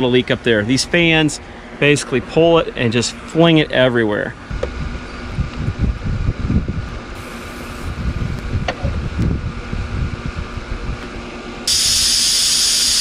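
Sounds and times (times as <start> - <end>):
faint machine hum: 0.0 - 13.0
wind buffeting microphone: 4.4 - 11.2
refrigerant hissing from hoses: 11.7 - 13.0.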